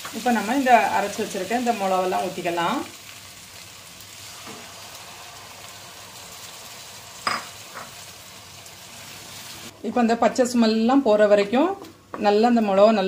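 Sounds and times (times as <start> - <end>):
vegetables sizzling in oil: 0.0 - 9.8.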